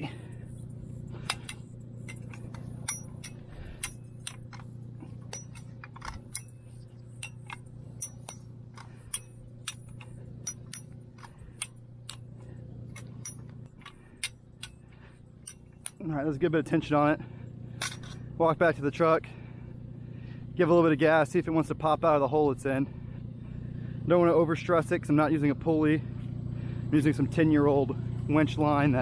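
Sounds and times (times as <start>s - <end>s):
low engine hum: 0.0s - 29.0s
ratchet clicking: 1.2s - 16.1s.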